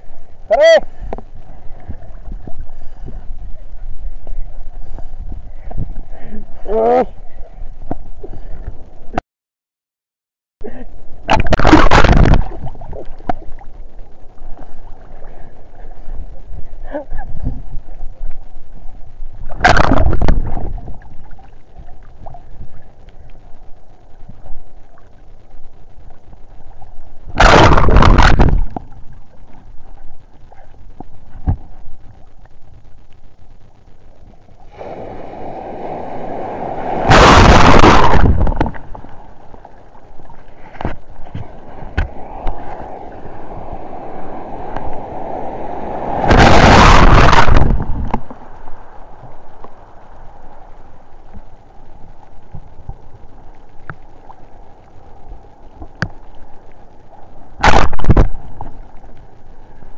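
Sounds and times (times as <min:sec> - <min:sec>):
sea waves sloshing: 0:34.6 - 0:51.4
surf breaking: 0:34.7 - 0:50.4.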